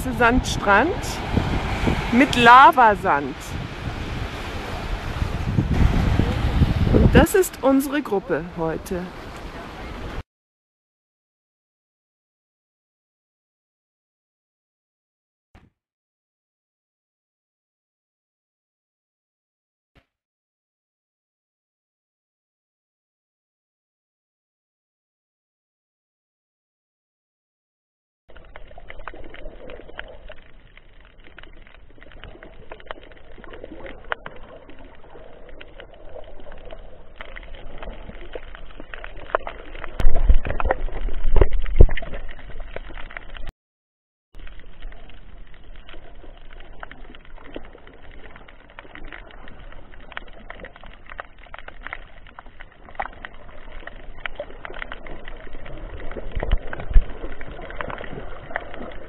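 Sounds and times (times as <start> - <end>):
low underwater rumble: 0.0 - 7.4, 28.3 - 43.5, 44.4 - 59.0
underwater water noise: 0.0 - 10.2, 28.3 - 43.5, 44.4 - 59.0.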